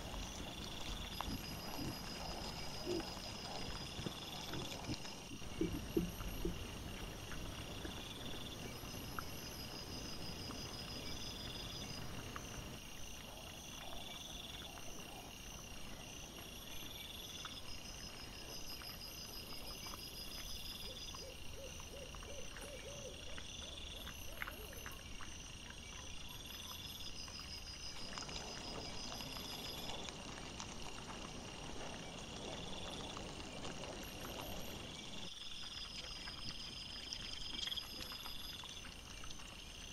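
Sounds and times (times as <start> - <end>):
animals rustling and clicking: 0.0 - 39.8
high insect chirp: 0.0 - 39.9.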